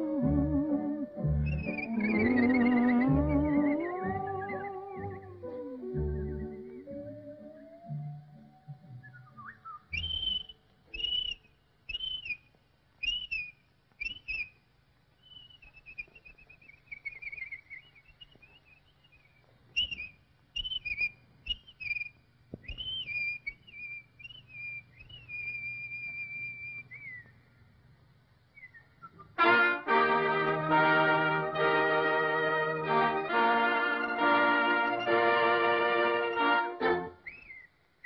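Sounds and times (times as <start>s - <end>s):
whistled bird calls: 1.4s - 8.1s, 9.0s - 14.6s, 15.2s - 27.4s, 28.5s - 29.4s, 37.2s - 37.8s.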